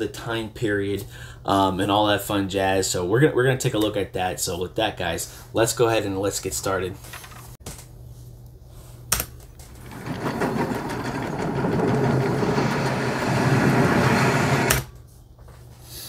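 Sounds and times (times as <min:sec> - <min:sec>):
mechanical rattling clatter: 0:09.7 - 0:14.8.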